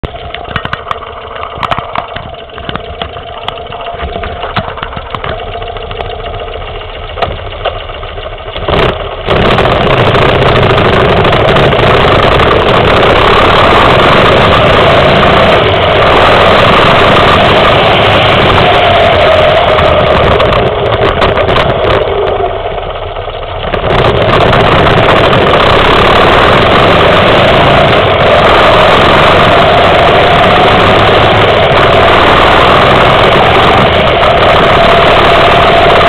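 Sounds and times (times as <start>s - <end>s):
motorcycle engine idling: 0.0s - 28.2s
motorcycle riding off: 8.5s - 22.8s, 23.6s - 36.0s.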